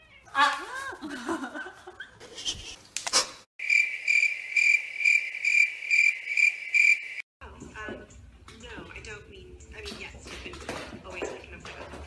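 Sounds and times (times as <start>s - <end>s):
high pulsing cricket-like chirping: 3.6s - 7.2s.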